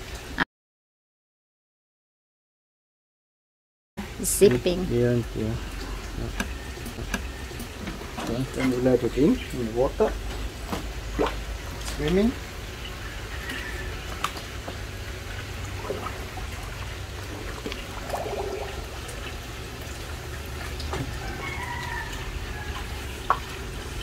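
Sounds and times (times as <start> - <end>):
water dripping and gurgling: 0.0 - 0.4, 4.0 - 24.0
air bubbling: 4.3 - 24.0
small splashes: 10.7 - 24.0.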